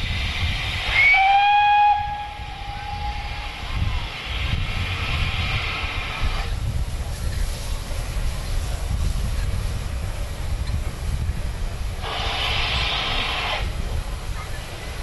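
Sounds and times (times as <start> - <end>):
steady low rumble: 0.0 - 15.0
steam hissing: 0.0 - 15.0.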